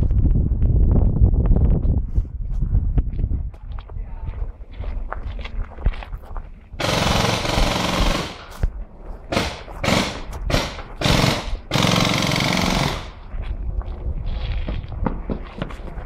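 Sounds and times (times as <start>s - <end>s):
paintball markers firing in bursts: 6.8s - 8.6s, 9.3s - 13.2s.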